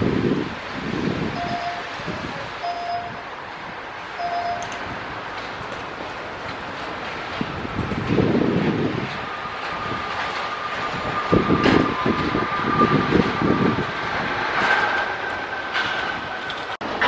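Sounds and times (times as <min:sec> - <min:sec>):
jet engines roaring: 0:00.0 - 0:17.0
gusty low thumps: 0:07.3 - 0:10.2.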